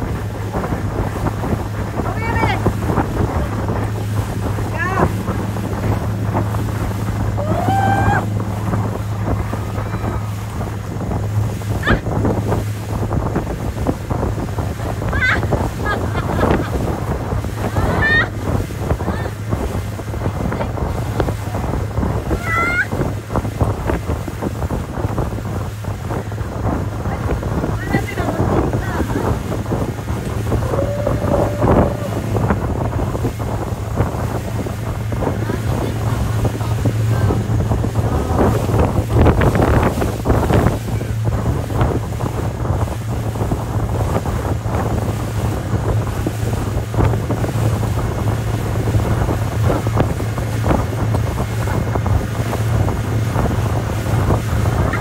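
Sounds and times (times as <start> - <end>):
motorboat engine running: 0.0 - 55.0
wake churning: 0.0 - 55.0
water rushing: 0.0 - 55.0
wind buffeting microphone: 0.0 - 55.0
people shouting and whooping: 7.4 - 8.3, 22.3 - 23.0, 30.5 - 32.4.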